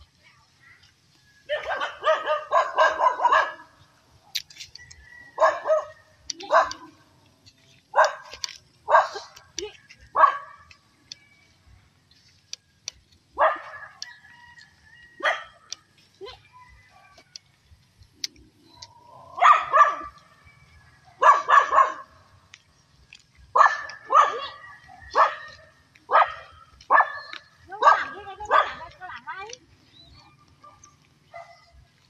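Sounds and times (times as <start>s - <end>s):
dog barking: 1.5s - 3.8s, 5.4s - 7.0s, 7.9s - 9.4s, 10.1s - 10.7s, 13.4s - 14.0s, 15.2s - 15.6s, 19.3s - 20.3s, 21.2s - 22.2s, 23.5s - 29.0s, 30.6s - 31.8s.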